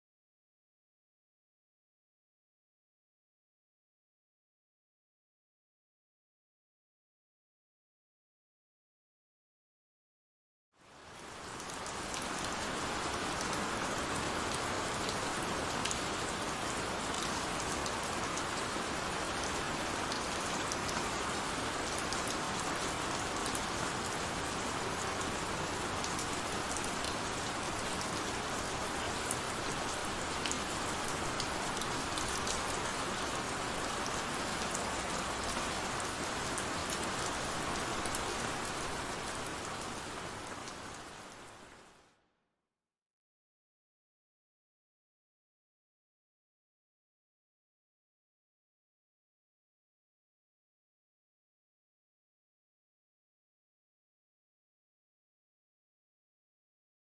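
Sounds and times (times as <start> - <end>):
heavy rain falling: 10.8 - 42.0.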